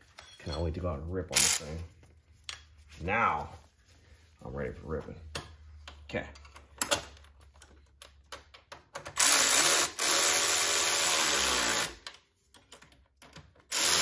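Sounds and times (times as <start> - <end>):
electric ratchet driving a bolt: 9.1 - 12.1, 13.6 - 14.0.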